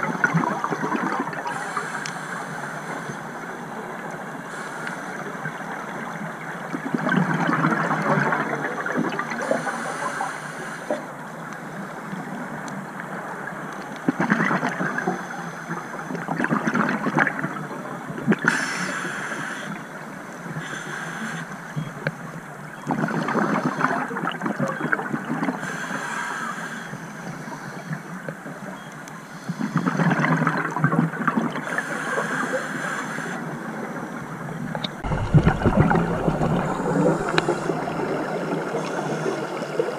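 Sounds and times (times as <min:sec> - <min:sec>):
hissing regulator inhalations: 0:20.6 - 0:21.5, 0:31.7 - 0:33.4, 0:36.0 - 0:39.6
gurgling exhaled bubbles: 0:34.7 - 0:39.9.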